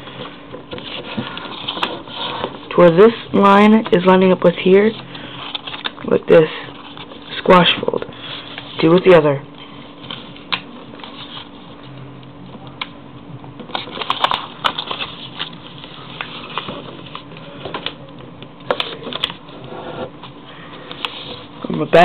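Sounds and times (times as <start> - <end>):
faint steady hum: 0.0 - 22.0
paper crackling and tapping: 0.1 - 2.7, 13.6 - 22.0.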